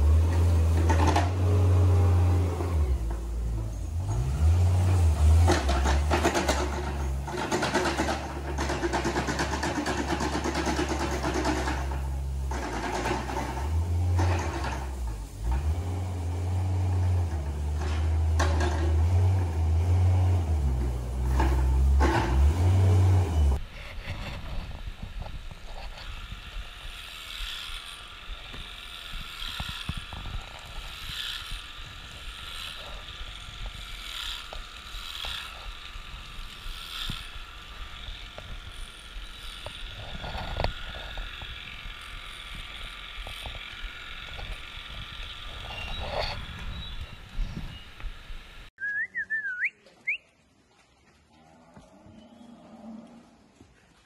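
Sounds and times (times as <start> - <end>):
electric clippers whining: 0.0 - 23.6, 24.3 - 48.7
loader engine running: 0.0 - 23.7, 24.4 - 49.6
wavering whistle-like tone: 48.8 - 50.3.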